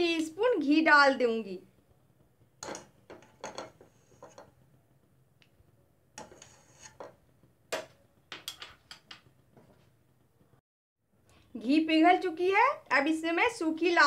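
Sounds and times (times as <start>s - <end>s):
metal spoon tapping on bowl and pan: 2.6s - 4.5s, 6.2s - 9.3s.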